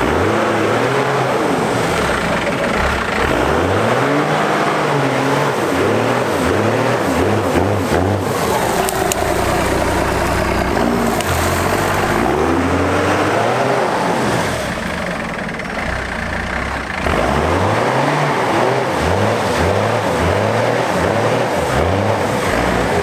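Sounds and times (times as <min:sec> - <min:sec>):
diesel truck engine revving: 0:00.0 - 0:23.0.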